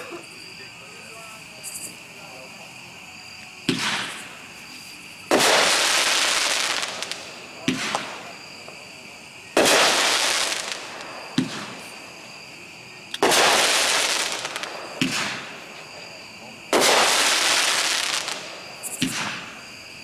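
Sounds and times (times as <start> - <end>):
firework launch thump: 3.6 - 4.3, 7.0 - 8.3, 11.3 - 11.8, 14.9 - 15.5, 19.0 - 19.6
firework bang with crackling tail: 3.6 - 4.4, 5.3 - 8.5, 9.6 - 12.0, 13.2 - 15.7, 16.7 - 19.7.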